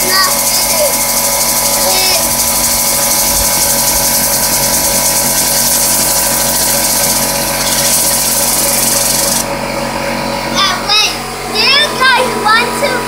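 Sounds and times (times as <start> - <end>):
compressed air hissing: 0.0 - 9.4
mechanical hum: 0.0 - 13.0.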